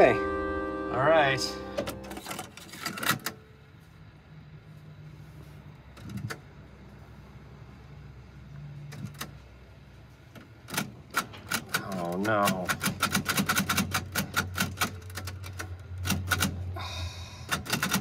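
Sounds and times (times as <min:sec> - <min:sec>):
low motor hum: 0:00.0 - 0:02.3.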